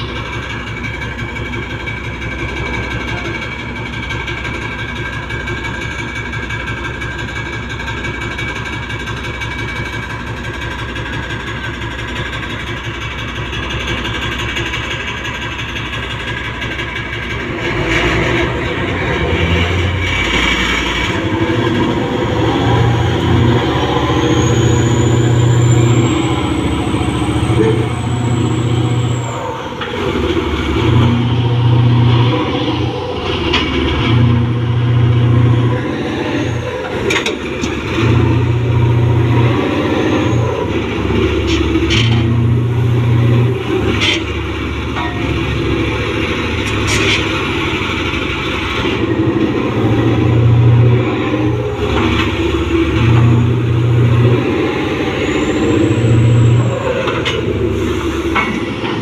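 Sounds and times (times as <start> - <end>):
diesel engine labouring: 0.0 - 59.0
metal clanks and knocks: 36.7 - 50.9, 58.2 - 59.0.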